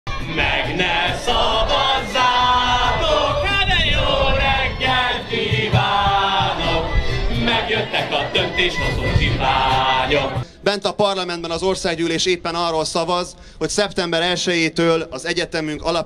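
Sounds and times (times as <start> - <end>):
crowd singing: 0.1 - 10.5
man singing into microphone: 0.3 - 10.4
violin: 4.6 - 10.4.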